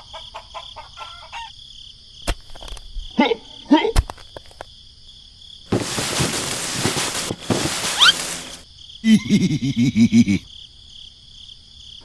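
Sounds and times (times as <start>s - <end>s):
bursts of rough hissing: 5.7s - 8.6s.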